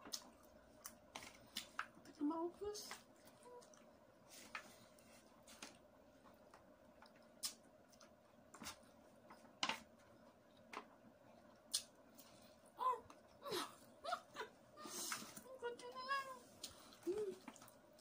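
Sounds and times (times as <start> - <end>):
eating clicks and smacks: 6.6 - 9.4, 10.4 - 12.4.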